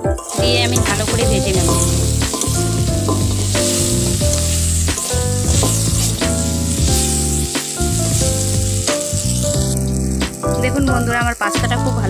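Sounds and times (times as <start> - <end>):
background music with bass: 0.0 - 12.0
metal spatula scraping: 0.2 - 8.3
pasta sizzling in oil: 0.2 - 12.0.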